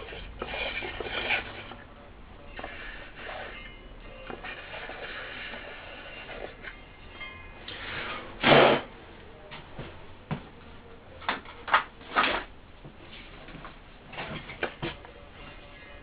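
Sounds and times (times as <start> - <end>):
scraping and knocking handling sounds: 11.2 - 15.1.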